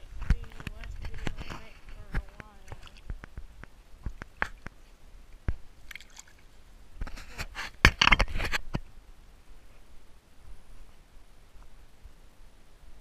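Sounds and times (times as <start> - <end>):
clothing brushing microphone: 0.0 - 3.0, 7.0 - 8.7.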